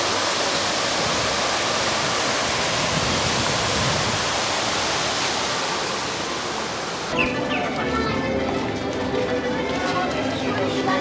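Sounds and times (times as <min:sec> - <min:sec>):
fountain water cascading into pool: 0:00.0 - 0:07.4.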